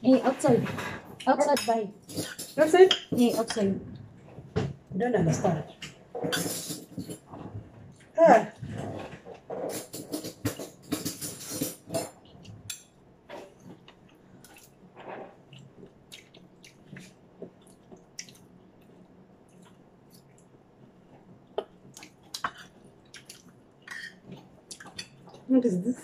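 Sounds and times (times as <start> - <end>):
chewing and mouth clicks: 13.6 - 20.6, 21.5 - 25.5.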